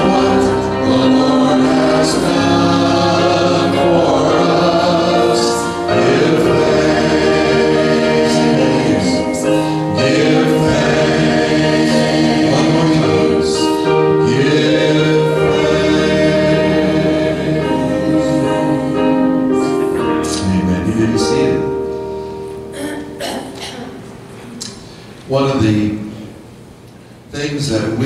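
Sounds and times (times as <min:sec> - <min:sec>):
group singing gospel in harmony: 0:00.0 - 0:20.2.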